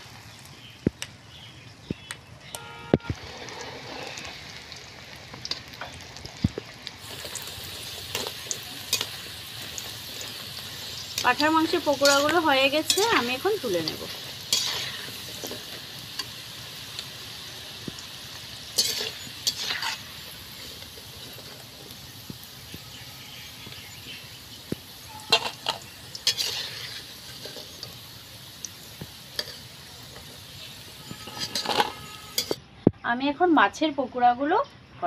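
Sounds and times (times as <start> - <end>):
deep-frying sizzle in oil: 0.0 - 32.6
metal ladle scraping pan: 14.4 - 15.8, 18.8 - 21.6, 25.2 - 27.8, 31.1 - 32.6.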